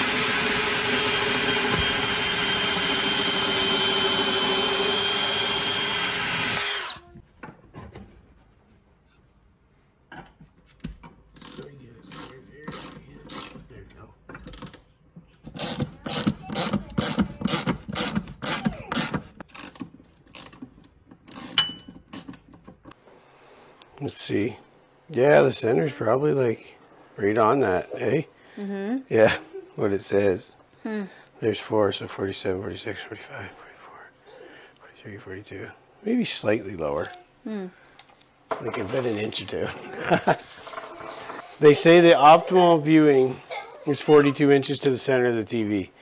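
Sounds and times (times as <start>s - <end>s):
power drill whining: 0.0s - 7.1s
ratchet wrench clicking: 11.4s - 13.6s.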